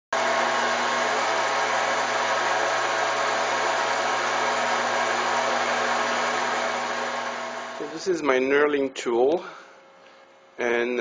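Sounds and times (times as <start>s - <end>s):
metal lathe whirring: 0.2s - 8.3s.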